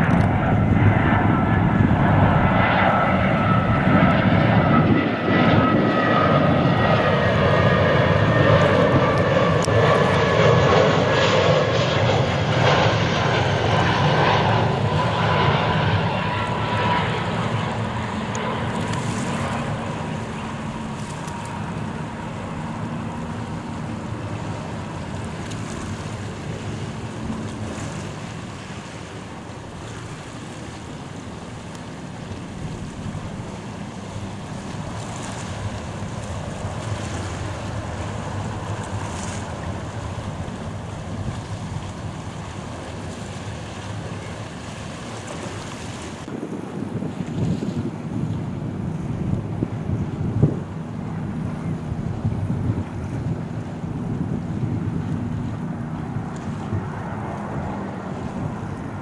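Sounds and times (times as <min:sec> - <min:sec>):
jet engines whining: 0:00.0 - 0:46.7.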